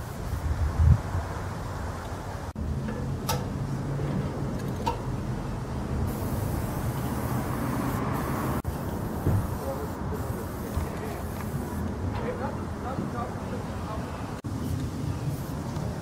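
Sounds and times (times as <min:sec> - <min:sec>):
aerosol spray can hissing: 0:06.1 - 0:11.8.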